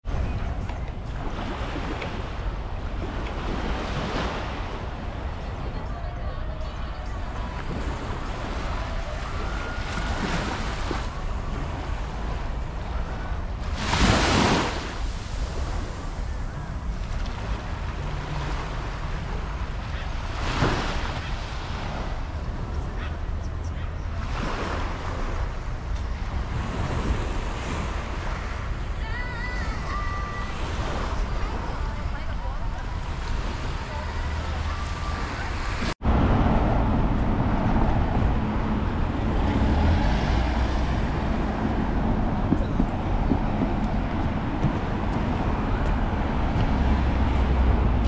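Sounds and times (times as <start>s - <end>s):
wind rumbling on microphone: 0.0s - 48.0s
surf breaking on beach: 13.6s - 18.8s.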